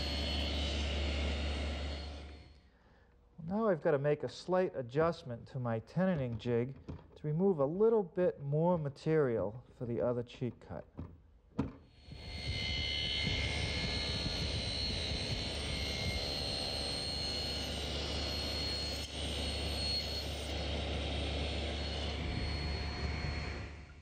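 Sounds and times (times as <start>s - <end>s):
table saw whine: 0.0s - 2.7s, 11.9s - 24.0s.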